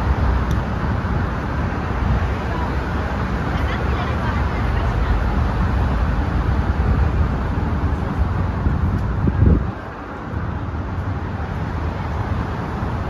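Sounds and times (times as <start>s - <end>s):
road traffic rumble: 0.0s - 13.0s
wind buffeting microphone: 0.0s - 13.0s.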